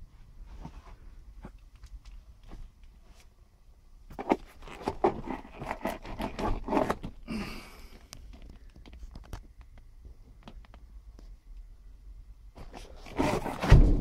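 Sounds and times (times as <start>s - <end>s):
short rustling scrape: 12.6s - 14.0s.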